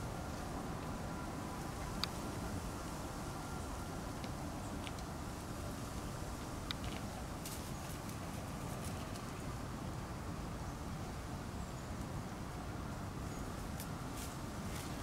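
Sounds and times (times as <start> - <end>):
paws rustling through dry leaves: 13.7 - 15.0.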